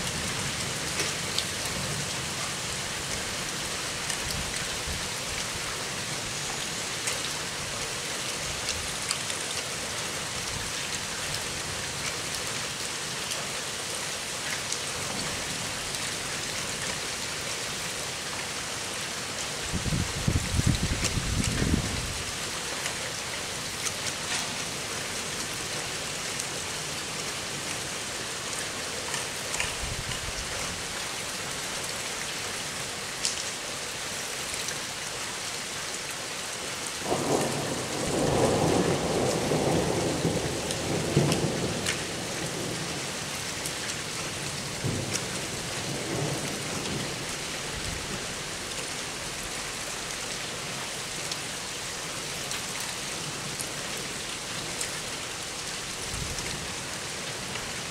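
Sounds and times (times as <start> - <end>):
steady rain: 0.0 - 57.9.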